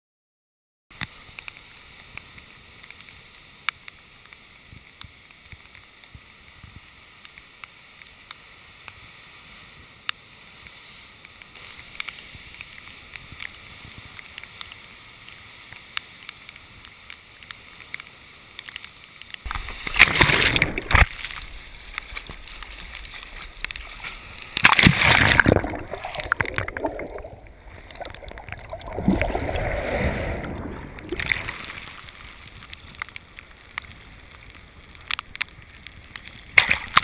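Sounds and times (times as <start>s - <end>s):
rough sea water washing: 19.4s - 37.0s.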